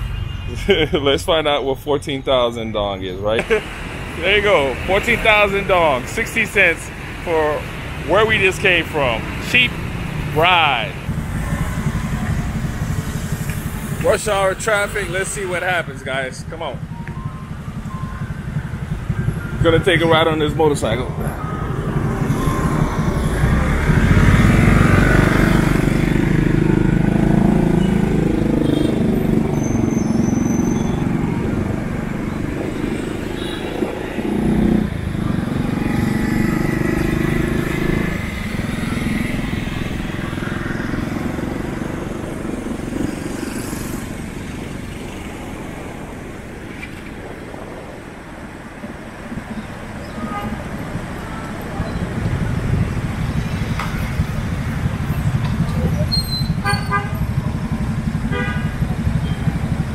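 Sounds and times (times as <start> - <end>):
city traffic: 0.0 - 59.9
motorbike engine: 3.4 - 48.4, 49.0 - 59.9.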